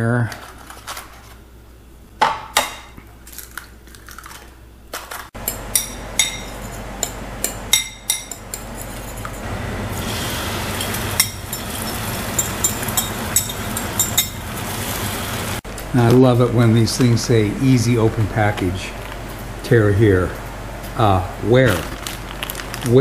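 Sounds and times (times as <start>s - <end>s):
fork clinking against bowl: 5.4s - 9.4s, 12.3s - 14.4s.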